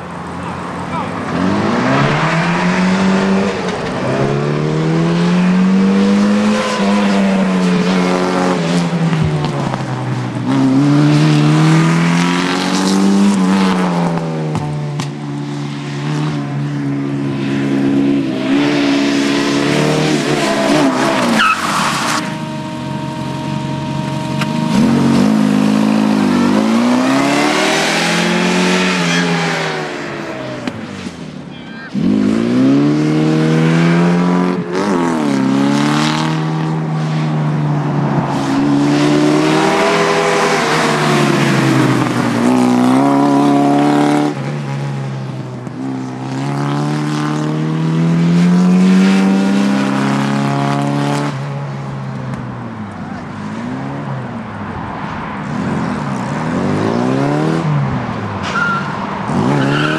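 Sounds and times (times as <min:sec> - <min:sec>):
car engine revving: 0:00.0 - 0:52.4, 0:55.4 - 0:59.9.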